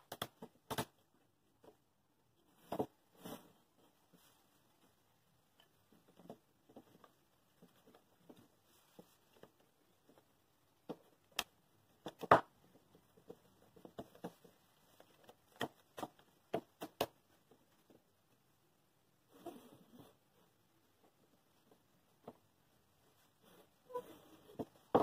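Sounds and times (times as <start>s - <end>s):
wooden boards knocking and clicking: 12.0s - 12.5s.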